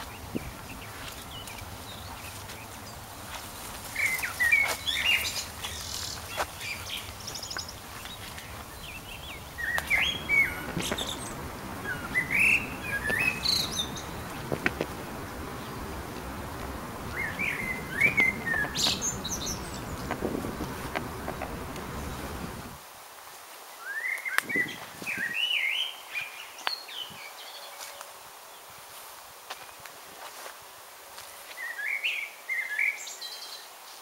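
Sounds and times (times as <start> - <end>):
birds chirping: 0.0 - 22.8.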